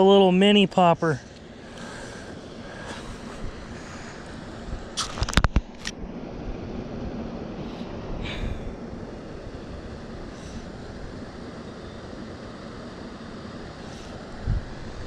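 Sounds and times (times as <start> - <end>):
wind noise on microphone: 2.6 - 11.5, 14.1 - 15.0.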